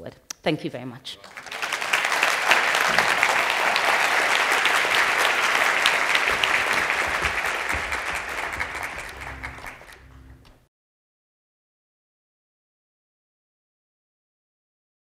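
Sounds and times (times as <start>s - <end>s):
audience applauding: 1.2s - 10.4s.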